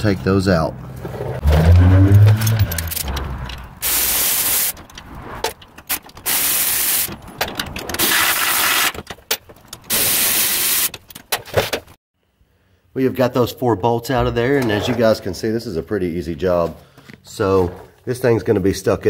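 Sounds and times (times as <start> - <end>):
metal clicks of socket and bolts: 2.4 - 3.7
air tool hissing: 3.8 - 4.7.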